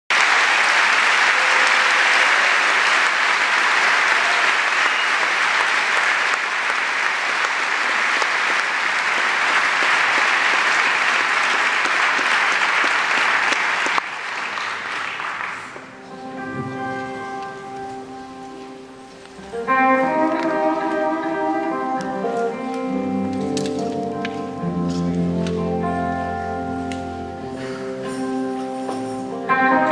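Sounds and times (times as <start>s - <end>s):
audience applauding: 0.1s - 16.3s.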